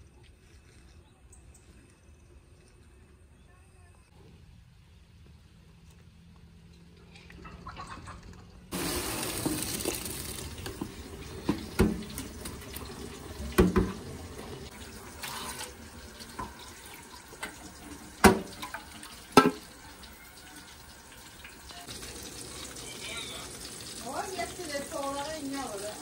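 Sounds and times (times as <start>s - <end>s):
water pouring through colander: 8.7s - 26.0s
metal pot knocking sink: 10.8s - 12.4s, 13.5s - 14.1s, 18.2s - 19.7s.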